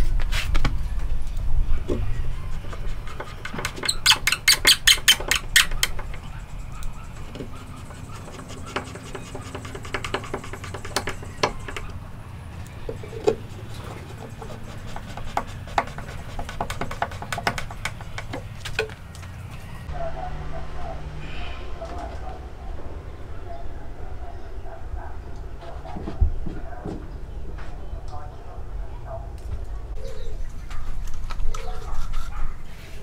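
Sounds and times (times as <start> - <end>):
hand tool clicking on wood: 2.7 - 6.3, 7.2 - 12.0, 14.0 - 19.0.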